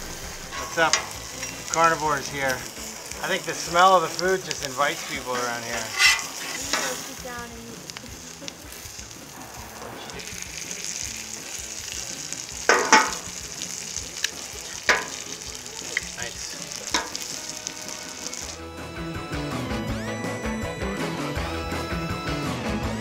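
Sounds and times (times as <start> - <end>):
metal utensils scraping griddle: 0.0 - 7.2, 12.7 - 13.2
food sizzling on a griddle: 0.0 - 19.6.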